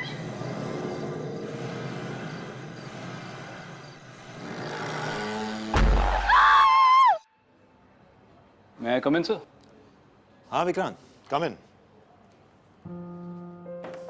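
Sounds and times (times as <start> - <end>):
low rumbling drone: 0.0 - 4.4.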